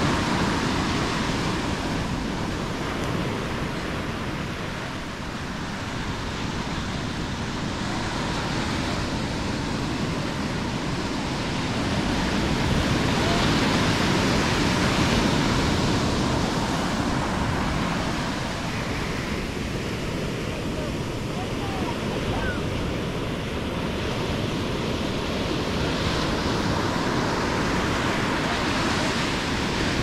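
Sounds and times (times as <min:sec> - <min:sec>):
surf breaking on beach: 0:00.0 - 0:30.0.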